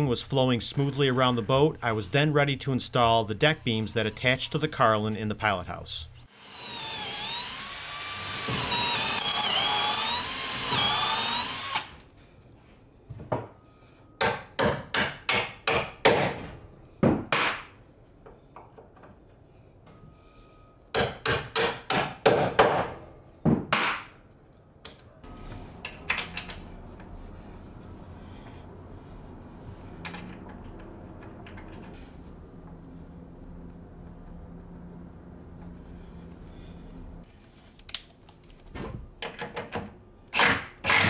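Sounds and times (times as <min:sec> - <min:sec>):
cordless drill driving screw: 0:06.3 - 0:11.9.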